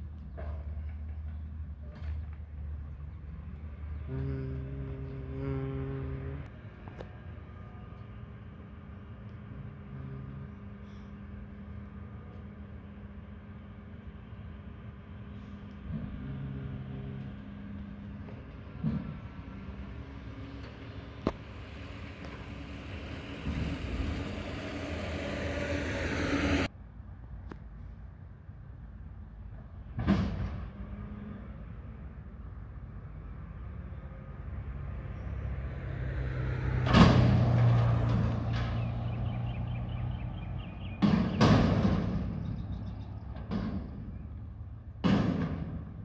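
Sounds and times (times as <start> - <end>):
garbage truck diesel engine revving: 4.0 - 6.5, 15.8 - 26.7
loud metal bangs: 21.1 - 26.7, 40.9 - 42.6, 45.0 - 46.0.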